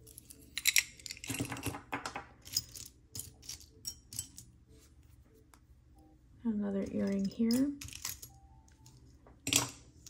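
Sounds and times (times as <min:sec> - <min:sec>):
jewelry clinking and rattling: 0:00.0 - 0:04.6, 0:06.8 - 0:10.0.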